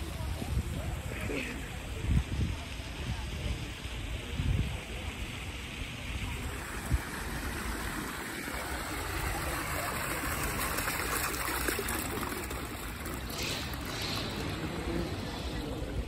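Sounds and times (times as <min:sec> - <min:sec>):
water jets splashing on stone: 0:00.0 - 0:16.0.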